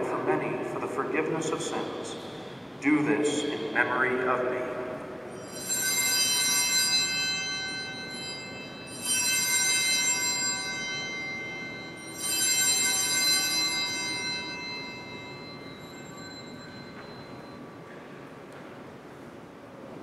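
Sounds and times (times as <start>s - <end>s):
altar bells ringing: 5.2s - 18.0s.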